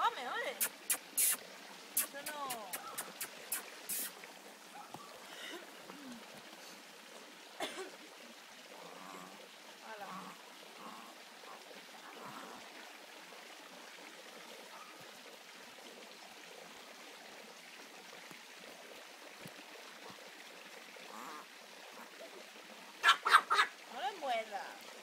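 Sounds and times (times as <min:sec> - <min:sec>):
puppies yapping: 0:23.0 - 0:23.7.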